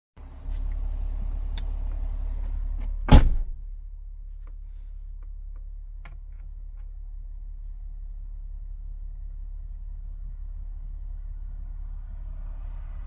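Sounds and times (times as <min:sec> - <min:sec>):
low steady hum: 0:00.2 - 0:13.0
loud thud: 0:03.1 - 0:03.6.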